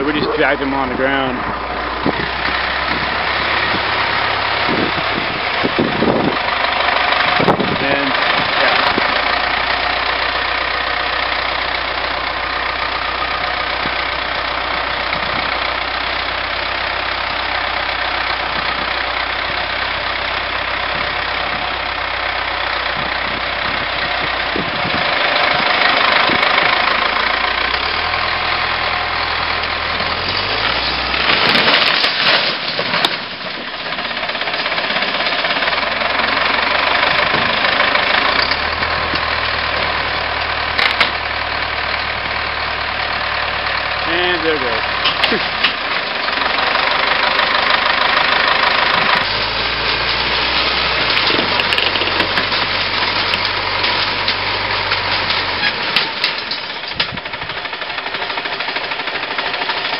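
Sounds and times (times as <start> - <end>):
diesel engine revving: 0.0 - 59.9
sheet metal crashing and scraping: 30.8 - 35.6.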